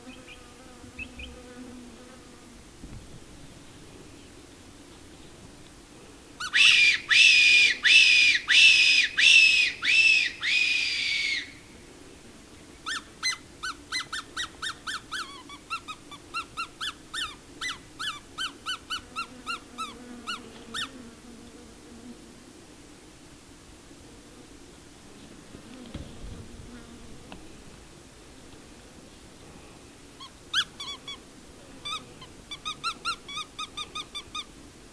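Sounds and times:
fox whistle squeals: 6.4 - 11.6.

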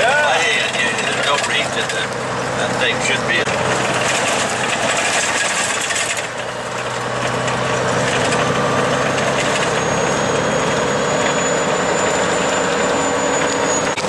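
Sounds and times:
diesel truck engine running: 0.0 - 14.0
road noise: 0.0 - 14.0
rattling: 0.6 - 10.2.

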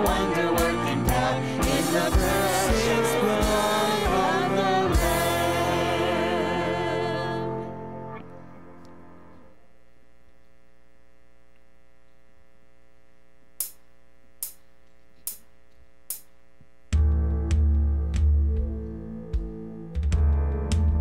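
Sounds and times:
synth pad holding a chord: 0.0 - 9.5.

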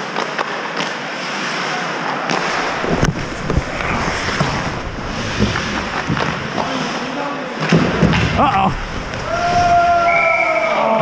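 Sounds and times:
skate blades scraping ice: 0.2 - 7.0.

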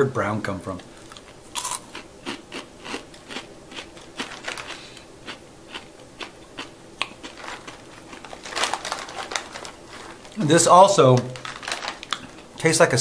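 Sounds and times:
chewing crunchy rice crackers: 1.0 - 10.4, 11.3 - 12.6
plastic snack bag rustling: 3.2 - 5.1, 7.0 - 13.0.

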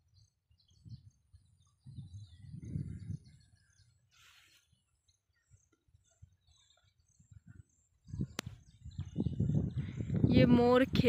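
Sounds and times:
faint birds chirping: 0.0 - 11.0
wind buffeting microphone: 0.5 - 4.0, 5.9 - 11.0.

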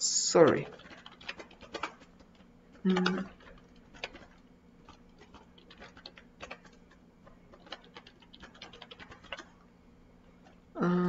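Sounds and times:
computer keyboard typing: 0.2 - 9.6.

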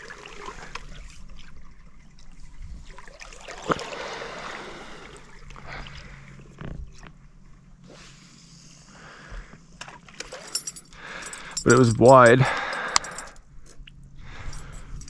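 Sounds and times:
water lapping against boat: 0.0 - 8.6.

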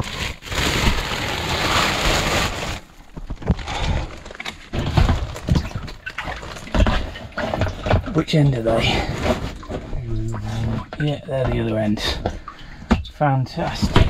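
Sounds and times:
plastic sheeting rustling: 0.0 - 5.9.

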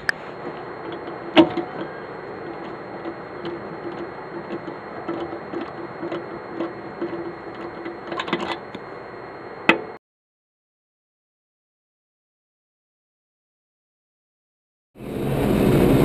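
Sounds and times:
lug wrench ticking and rattling: 0.0 - 8.7.

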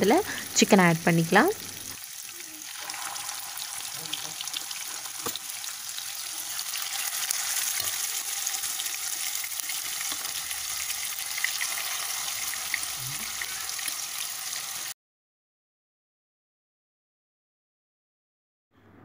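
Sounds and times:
chicken sizzling in hot oil: 0.0 - 15.0
spatula moving food in pan: 1.9 - 14.0.

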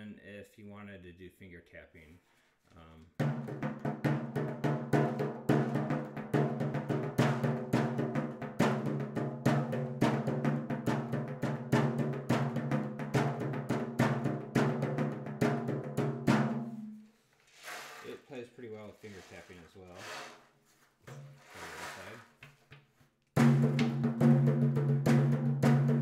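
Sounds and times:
drum head ringing: 3.2 - 17.0, 23.4 - 26.0
fingers tapping drum head: 23.4 - 26.0.

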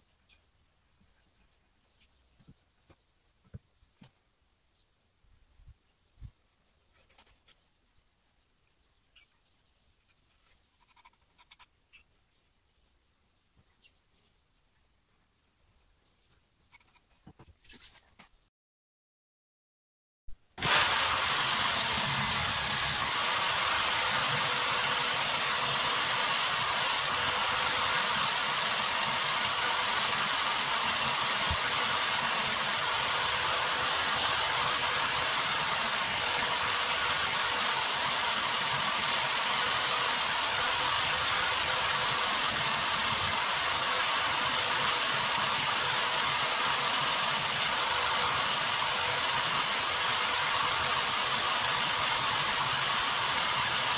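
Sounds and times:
electric drill motor whining: 20.6 - 53.9
wire wheel brushing metal: 20.6 - 53.9.

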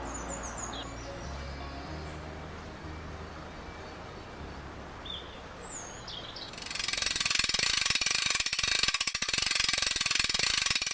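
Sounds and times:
bird chirps: 0.0 - 7.0
rapid ratcheting reel buzz: 6.5 - 10.9.

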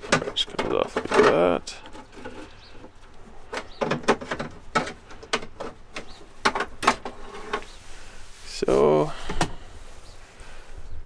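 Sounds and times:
light rubbing: 0.0 - 10.2
plastic cover clicks and knocks: 3.6 - 7.1.

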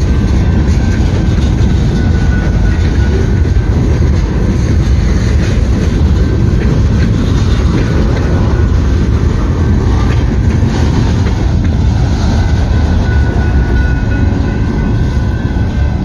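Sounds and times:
train wheels rumbling on rails: 0.0 - 16.0
faint high ringing: 12.7 - 16.0.

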